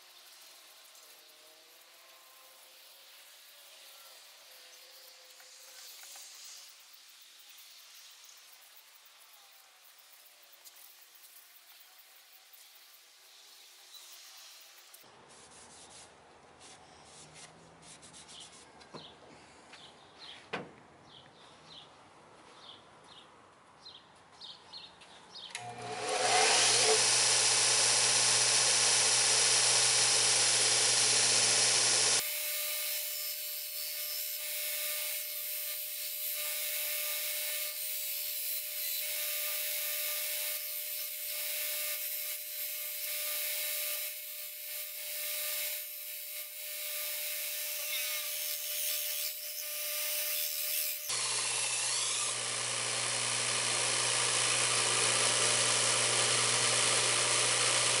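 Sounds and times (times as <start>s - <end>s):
belt sander running: 25.6s - 50.2s, 50.9s - 58.0s
grinding hiss: 25.6s - 58.0s.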